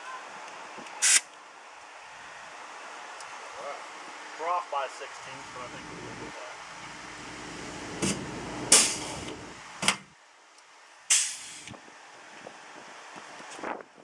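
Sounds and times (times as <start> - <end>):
air hiss: 1.0 - 1.2, 8.0 - 9.5, 11.1 - 11.8
low hum: 5.1 - 10.2.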